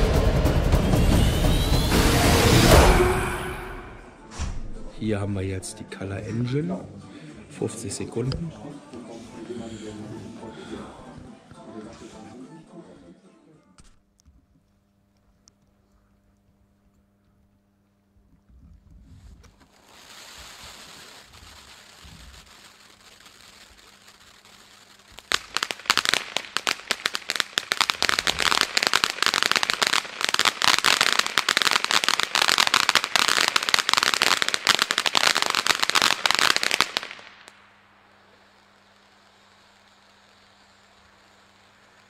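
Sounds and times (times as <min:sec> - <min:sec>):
firework fountain crackling: 0:00.0 - 0:04.0, 0:19.1 - 0:42.0
firework fountain hissing sparks: 0:00.0 - 0:04.2, 0:19.2 - 0:42.0.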